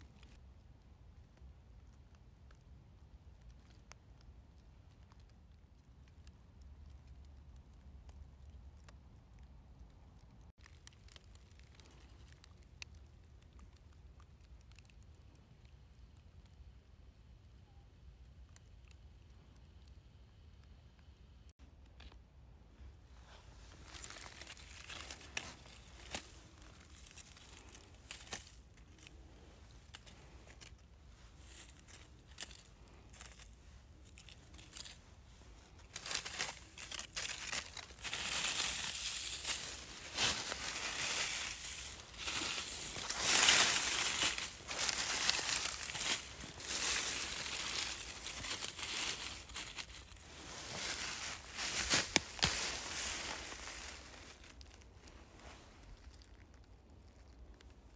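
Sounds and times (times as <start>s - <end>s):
dry leaves rustling: 10.6s - 13.0s, 23.1s - 57.6s.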